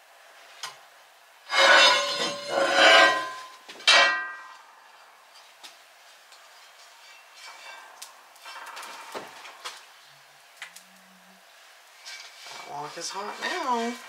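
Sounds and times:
cast iron cookware clanking: 1.5 - 4.5.

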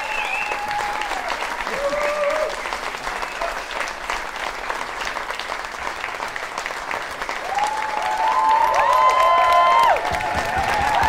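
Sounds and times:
voices cheering: 0.0 - 3.8, 7.4 - 11.0
audience applauding: 0.0 - 11.0.

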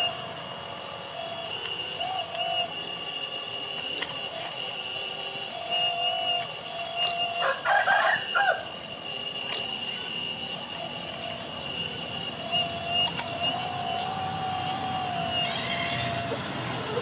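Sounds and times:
hydraulic pump whine: 0.0 - 17.0
chicken calling: 5.9 - 8.8, 12.6 - 17.0.

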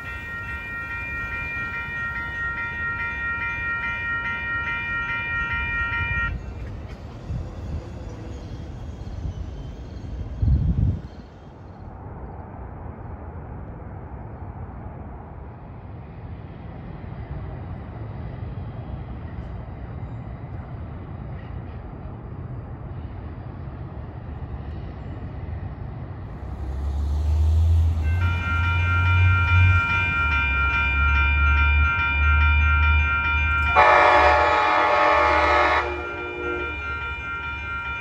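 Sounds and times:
diesel locomotive rumble: 0.0 - 38.0
locomotive air horn chord: 33.6 - 37.6.

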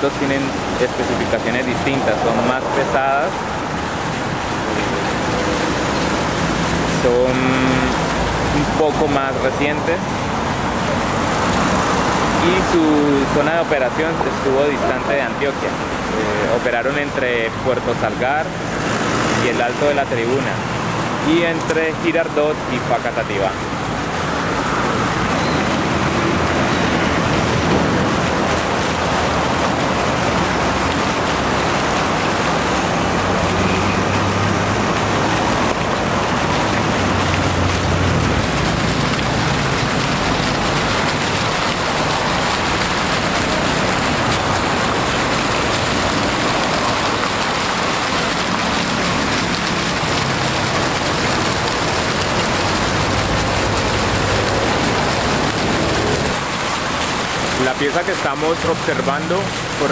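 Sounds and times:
fountain water splashing: 0.0 - 59.9.

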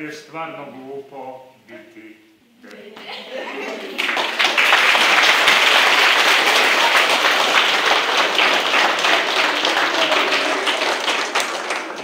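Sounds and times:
children applauding: 3.5 - 12.0.

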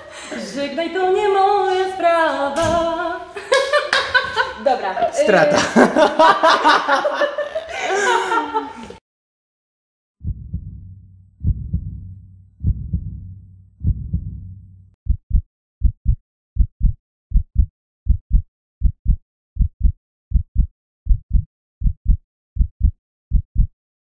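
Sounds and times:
deep booming thuds: 10.2 - 23.7
heartbeat sound effect: 10.2 - 23.8.

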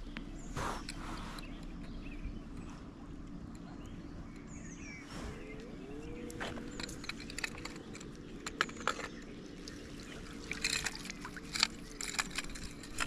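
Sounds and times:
flowing river water: 6.3 - 13.0.

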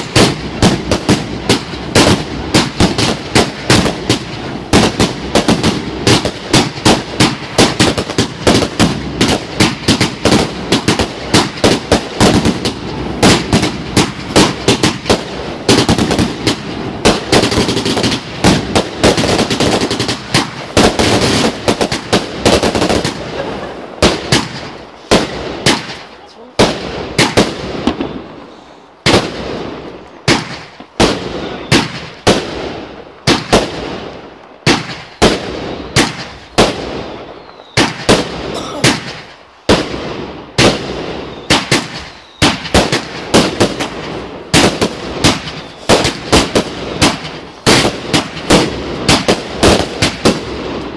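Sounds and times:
fireworks bangs: 0.0 - 50.9.

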